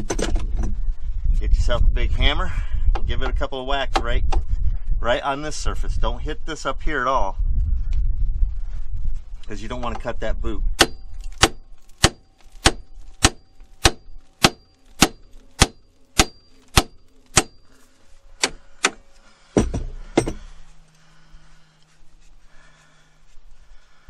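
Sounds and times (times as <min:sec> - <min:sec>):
hammer striking steel: 0:10.8 - 0:17.7, 0:18.4 - 0:20.5
heavy dull knocks: 0:18.4 - 0:20.6.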